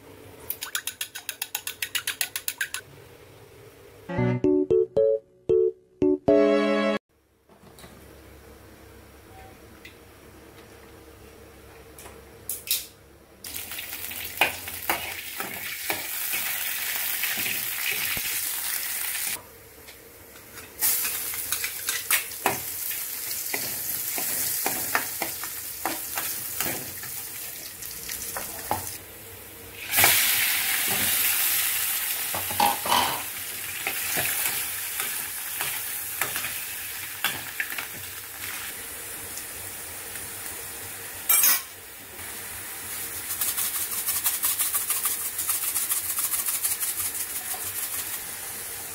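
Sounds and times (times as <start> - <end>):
food sizzling in hot oil: 13.4 - 19.4, 20.8 - 29.0, 29.7 - 41.5, 42.2 - 48.9.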